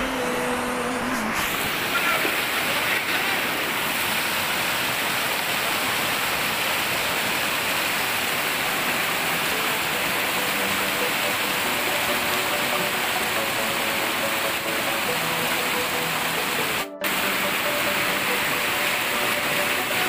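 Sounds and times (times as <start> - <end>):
river water rushing over rocks: 0.0 - 20.0
held musical tone: 8.7 - 20.0.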